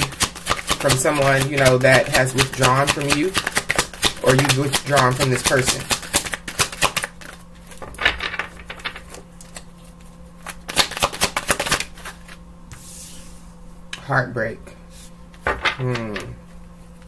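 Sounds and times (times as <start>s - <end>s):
cards being shuffled: 0.0s - 13.2s.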